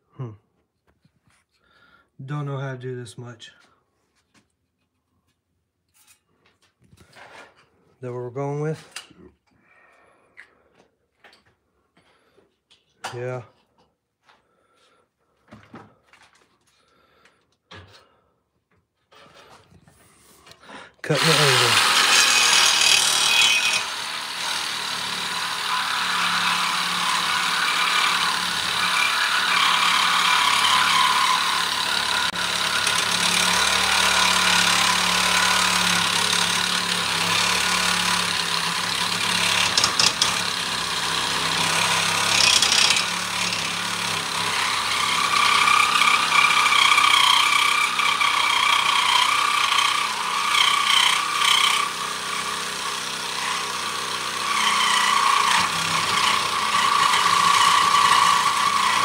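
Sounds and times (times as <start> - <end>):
reciprocating saw cutting metal: 21.1 - 59.0.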